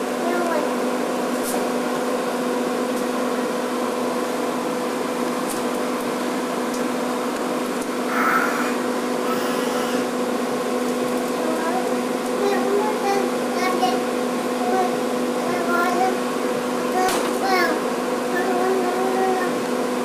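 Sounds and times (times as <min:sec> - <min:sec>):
mechanical hum: 0:00.0 - 0:20.0.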